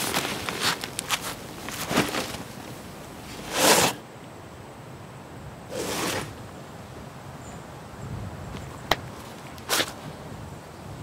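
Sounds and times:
backpack rustling swishes: 0:05.7 - 0:06.4.

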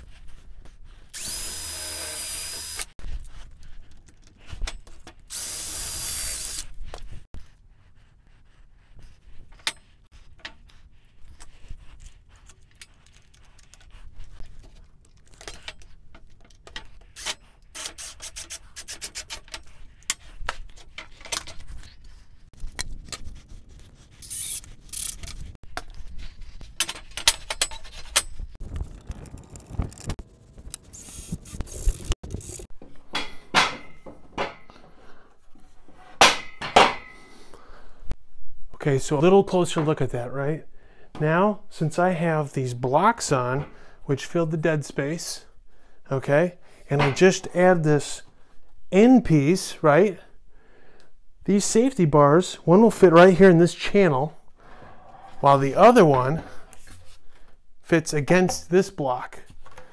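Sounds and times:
cordless drill driving screws: 0:01.2 - 0:02.9, 0:05.3 - 0:06.7.

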